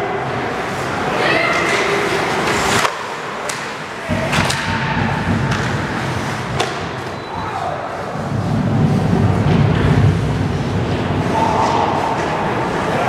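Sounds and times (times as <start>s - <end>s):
skates scraping on ice: 0.5s - 13.0s
hockey sticks and puck knocks: 1.5s - 7.2s.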